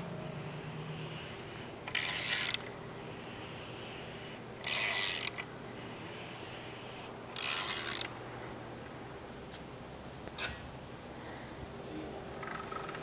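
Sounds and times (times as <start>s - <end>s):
hand ratchet clicking: 1.9s - 2.7s, 4.6s - 5.5s, 7.4s - 8.1s.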